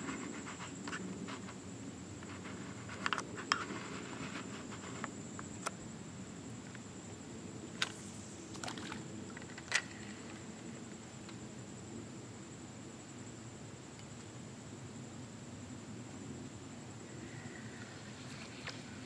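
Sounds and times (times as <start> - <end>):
steady low hiss: 0.0 - 19.0
thin high whine: 7.7 - 10.8.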